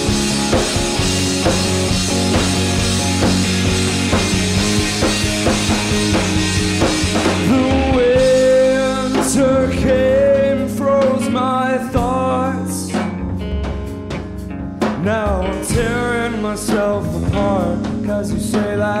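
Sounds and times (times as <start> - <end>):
long held melody line: 0.0 - 12.6
bass guitar: 0.0 - 19.0
drum kit: 0.0 - 19.0
electric guitar: 0.0 - 19.0.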